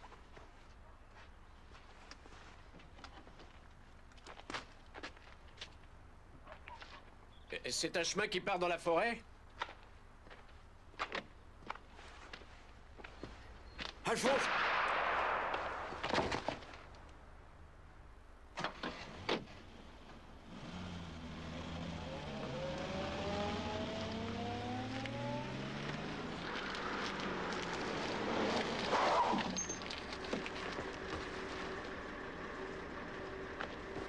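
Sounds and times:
car engine accelerating: 20.4s - 34.0s.

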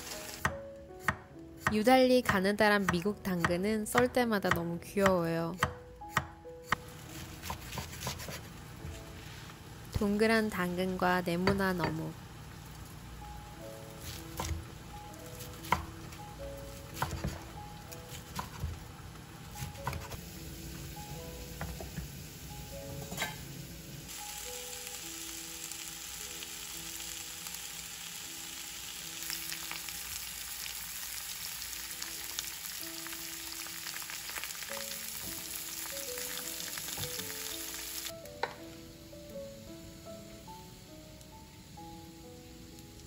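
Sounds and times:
food sizzling in frying pan: 0.0s - 0.5s, 11.5s - 39.3s
background music: 0.0s - 12.3s, 13.0s - 43.0s.

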